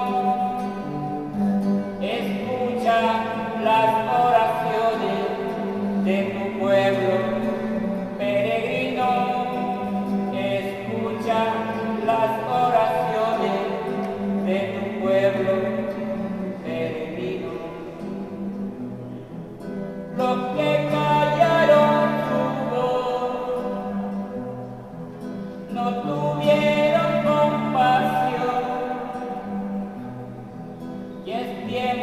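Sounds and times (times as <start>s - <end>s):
man singing: 0.0s - 18.6s, 19.7s - 30.2s, 30.8s - 32.0s
acoustic guitar strumming: 0.0s - 32.0s.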